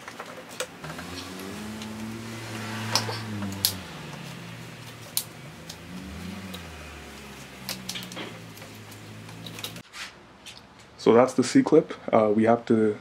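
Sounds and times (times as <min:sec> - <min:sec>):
hand tools clicking and tapping: 0:02.9 - 0:09.8.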